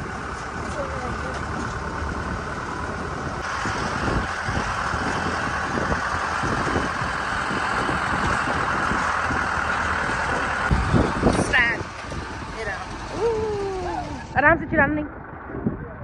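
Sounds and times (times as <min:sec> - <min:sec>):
truck engine and rolling noise: 0:00.0 - 0:16.0.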